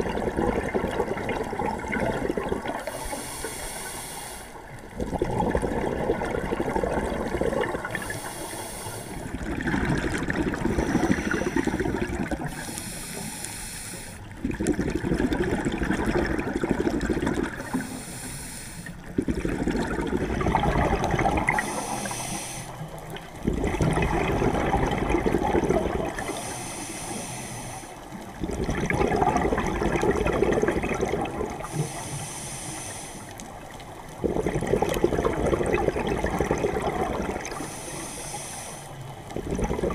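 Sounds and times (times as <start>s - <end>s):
underwater exhale bubbling: 0.0s - 39.9s
regulator inhale hiss: 2.8s - 4.8s, 7.9s - 9.3s, 10.7s - 14.4s, 17.6s - 19.1s, 21.5s - 23.0s, 26.2s - 28.3s, 31.6s - 33.8s, 37.4s - 39.2s.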